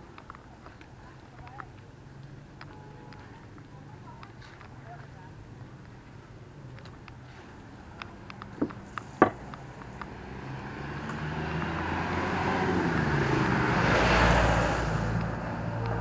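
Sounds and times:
motor vehicle passing: 6.6s - 16.0s.

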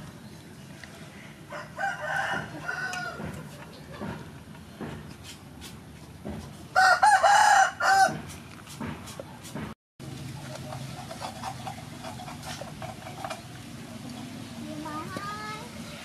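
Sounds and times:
rooster crowing: 1.5s - 3.3s, 6.8s - 8.2s.

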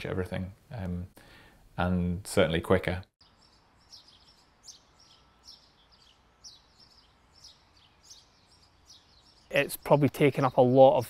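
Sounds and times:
low steady background hiss: 0.0s - 11.0s
faint songbird chirps: 3.2s - 11.0s.

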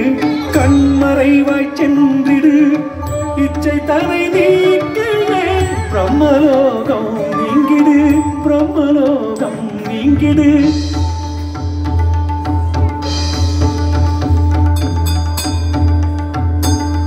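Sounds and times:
ornamented singing melody: 0.0s - 11.7s
low percussion: 0.0s - 17.0s.

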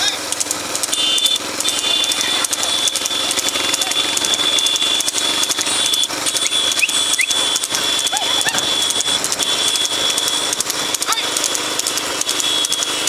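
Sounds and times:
rattling cart wheels: 0.0s - 13.0s
steady high whine: 0.0s - 13.0s
short rising whistles: 6.3s - 7.5s.

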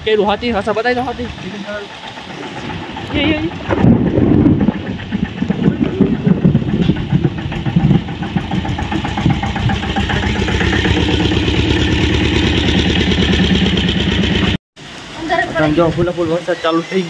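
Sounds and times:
tractor engine running: 0.0s - 14.6s.

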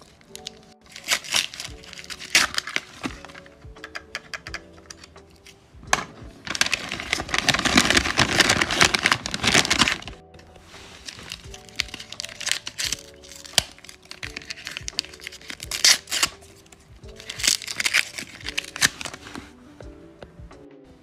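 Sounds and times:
paper crinkling and crumpling: 0.0s - 3.5s, 6.4s - 19.6s.

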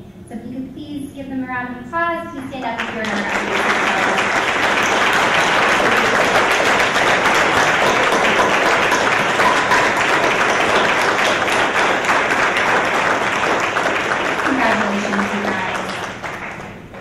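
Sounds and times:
audience applause: 2.8s - 17.0s.

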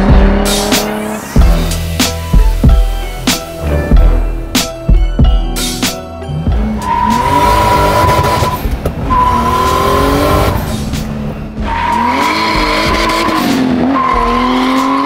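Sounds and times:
car engine revving: 0.0s - 4.5s, 6.4s - 15.0s
tires squealing: 6.6s - 15.0s.

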